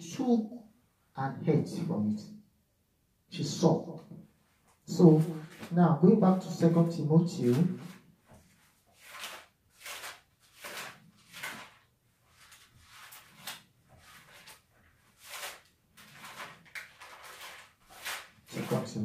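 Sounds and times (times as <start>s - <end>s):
book pages rustling: 5.0s - 5.8s, 6.4s - 19.0s.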